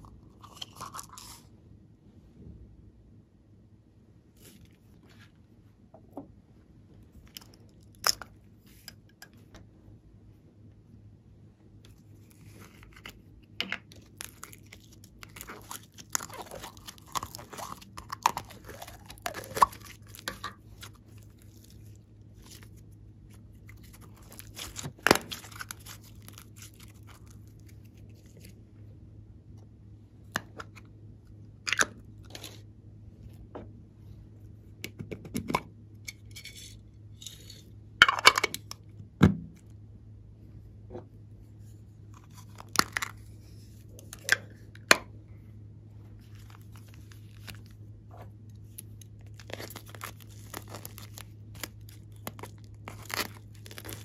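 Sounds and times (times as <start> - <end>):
faint steady hum: 0.0 - 54.0
clay squeezed by fingers: 13.8 - 21.7.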